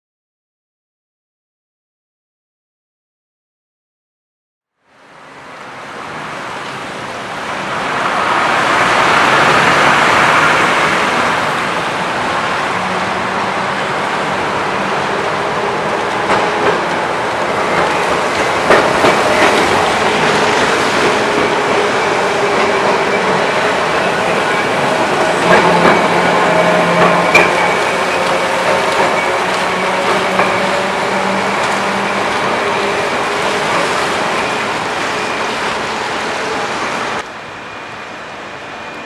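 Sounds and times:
tram rail rumble: 0:05.0 - 0:39.0
tram wheel clatter: 0:07.8 - 0:37.3.

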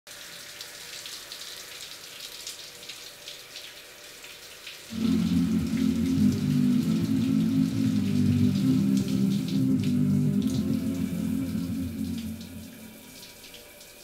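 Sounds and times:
water drips: 0:00.1 - 0:14.0
music with low held notes: 0:04.9 - 0:13.2
shower water spraying: 0:04.9 - 0:14.0.

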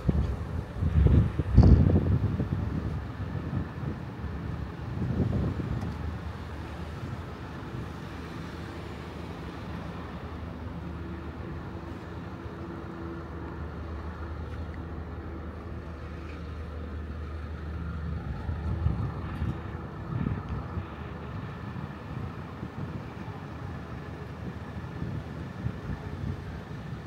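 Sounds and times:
wind hitting microphone: 0:00.0 - 0:08.1, 0:16.4 - 0:27.0
street traffic: 0:00.0 - 0:27.0
vehicle engine running: 0:00.0 - 0:27.0.

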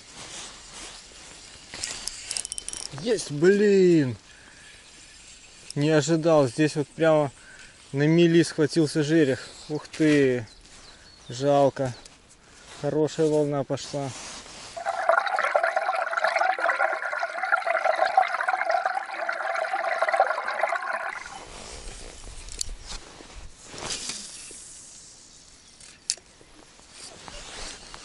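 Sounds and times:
water rushing underwater: 0:14.8 - 0:21.4.

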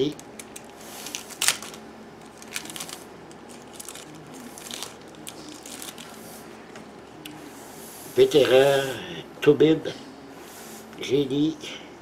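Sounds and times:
cards rustling: 0:00.1 - 0:06.4.

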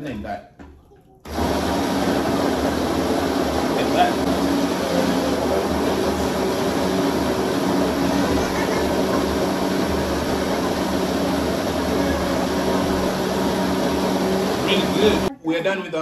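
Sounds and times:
blender running: 0:01.3 - 0:15.3.

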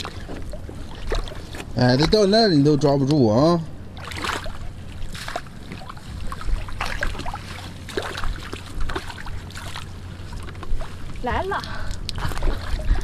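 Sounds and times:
low steady rumble: 0:00.0 - 0:13.0
dip net splashing in water: 0:04.0 - 0:11.0.

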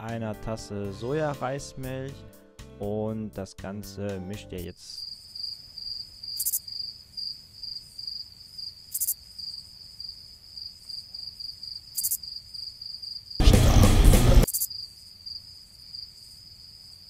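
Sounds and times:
cricket chirping trill: 0:05.0 - 0:13.4, 0:14.4 - 0:17.0
loud burst of noise: 0:13.4 - 0:14.5.

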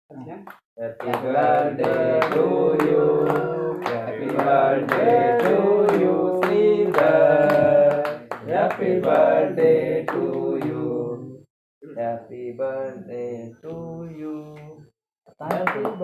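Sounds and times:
people clapping along: 0:00.4 - 0:10.9, 0:15.4 - 0:16.0
men singing together: 0:00.8 - 0:14.9.

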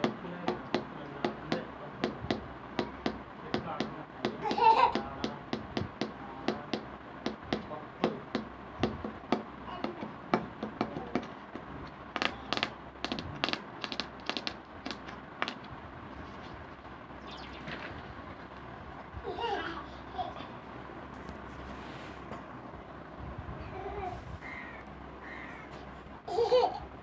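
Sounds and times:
sharp hand taps: 0:00.0 - 0:15.7.

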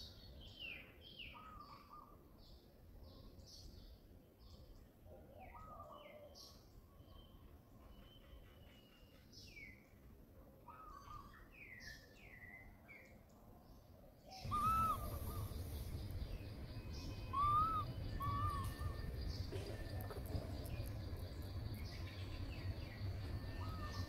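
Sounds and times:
background noise: 0:00.0 - 0:24.0
short arched bird call: 0:14.5 - 0:15.7.

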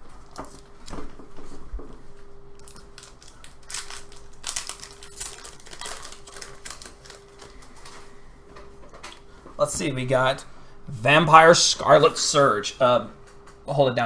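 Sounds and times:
foil pack crinkling and tearing: 0:02.6 - 0:08.2.

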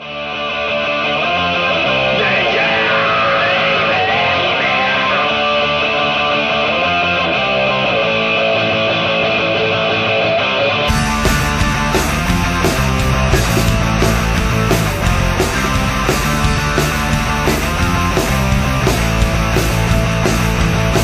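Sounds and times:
rock guitar playing: 0:00.0 - 0:21.0.

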